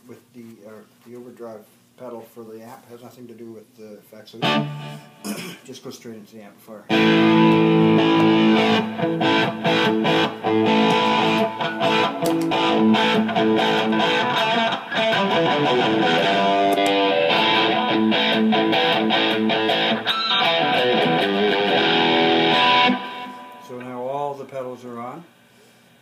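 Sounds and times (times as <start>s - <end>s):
overdriven electric guitar chords: 4.4s - 5.2s, 6.9s - 23.9s.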